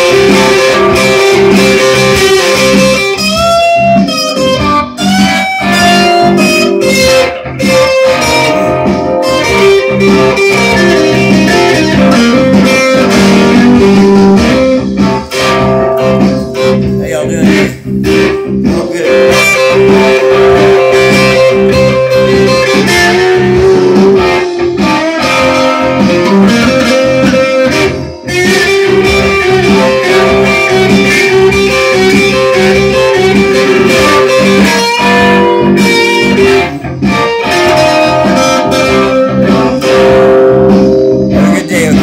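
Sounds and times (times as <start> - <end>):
electric guitar blues lead: 0.0 - 42.0.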